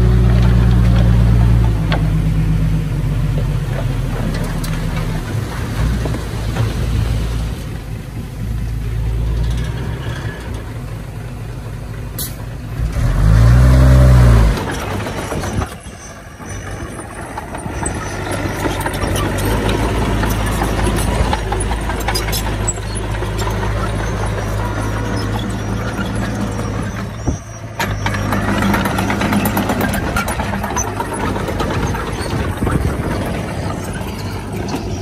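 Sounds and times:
diesel machinery engine running: 0.0 - 35.0
engine revving: 12.8 - 15.7.

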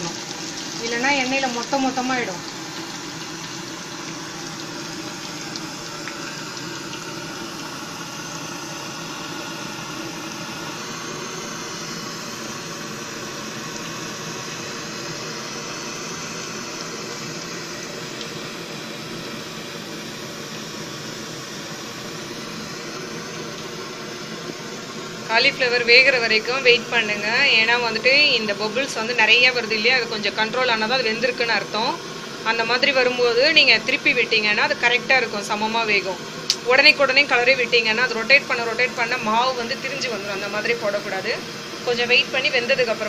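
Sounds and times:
food deep-frying in oil: 0.0 - 43.0.

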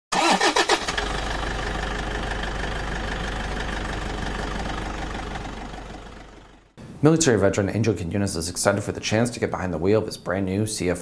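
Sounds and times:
truck engine idling: 0.2 - 6.8.

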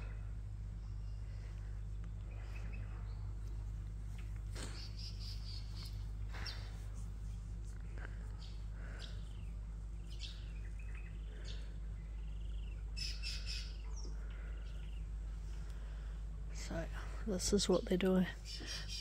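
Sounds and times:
steady low hum: 0.0 - 19.0
birds chirping and whistling: 0.8 - 3.5, 4.2 - 6.8, 8.3 - 15.2, 18.4 - 19.0.

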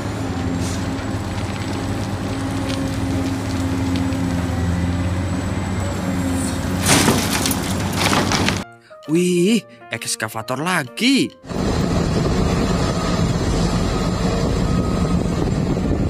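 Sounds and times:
excavator diesel engine droning: 0.0 - 8.6, 11.4 - 16.0
rush of soil and rock: 0.0 - 8.6.

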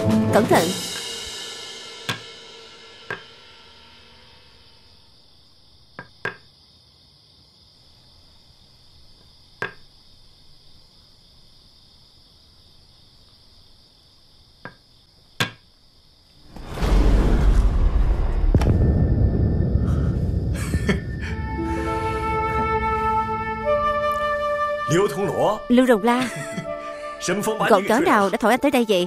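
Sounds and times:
music: 0.0 - 4.8, 16.8 - 29.0
crickets chirring: 0.8 - 29.0.

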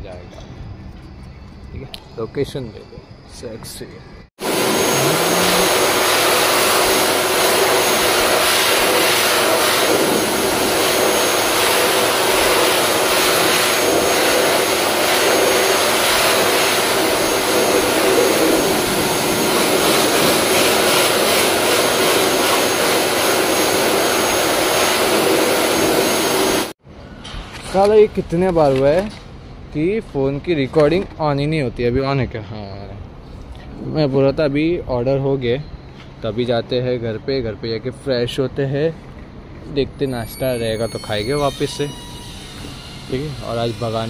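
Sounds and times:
pet grooming dryer blowing air: 4.4 - 26.8, 40.5 - 44.0.

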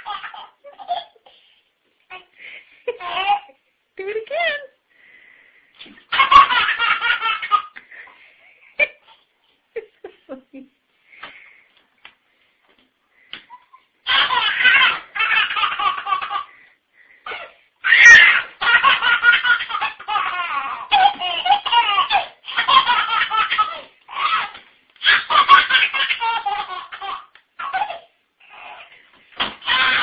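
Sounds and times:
baby laughing: 0.0 - 1.4, 2.1 - 3.6, 6.0 - 8.1, 13.4 - 16.5, 17.3 - 30.0.

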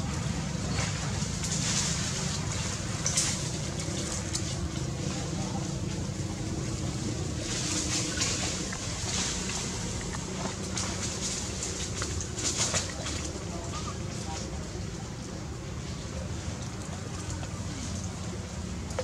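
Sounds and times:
animal splashing in water: 0.7 - 19.0.

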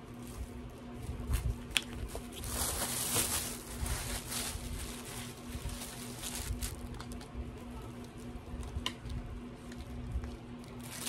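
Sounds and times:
plastic bags rustling: 0.0 - 7.2, 9.7 - 11.0.

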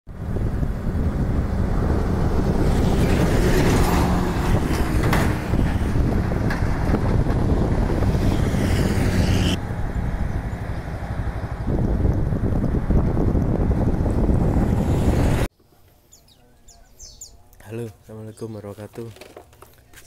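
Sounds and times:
truck passing: 0.1 - 15.5
wind rumbling on microphone: 0.1 - 15.5
road traffic: 0.1 - 15.9.

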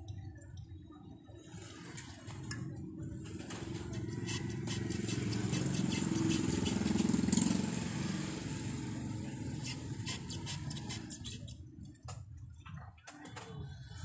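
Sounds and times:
blade scraping metal rim: 3.6 - 7.5, 9.5 - 11.6.

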